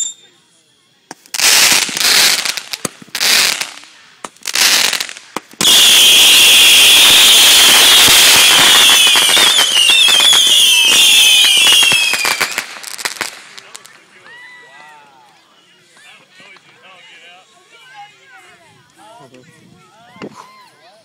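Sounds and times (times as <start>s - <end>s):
fountain firework hissing: 0.0s - 14.7s
short hissing firework bursts: 0.4s - 14.0s
firework crackling: 1.0s - 14.9s
high falling whistle: 5.6s - 12.4s.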